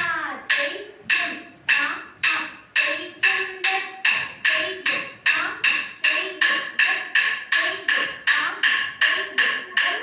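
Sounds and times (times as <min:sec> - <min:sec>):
sharp percussive beat: 0:00.0 - 0:10.0.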